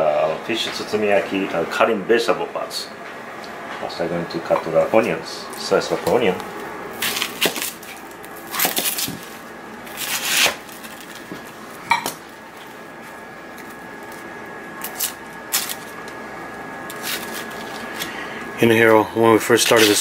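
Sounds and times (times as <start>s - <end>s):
onion skin crackling: 7.0s - 11.8s, 12.5s - 16.2s, 16.9s - 18.2s.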